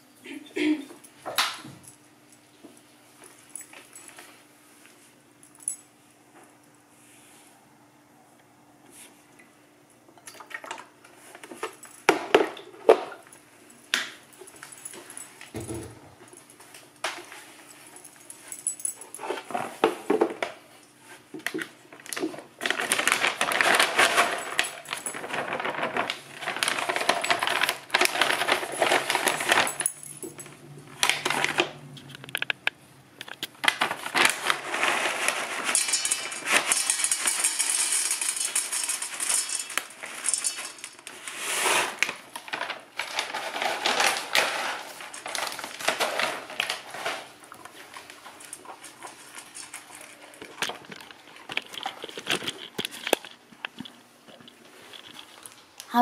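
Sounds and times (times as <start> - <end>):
kibble rattling into a bowl: 22.0 - 32.6, 33.2 - 41.3, 42.0 - 54.0
dog eating kibble: 47.6 - 55.6.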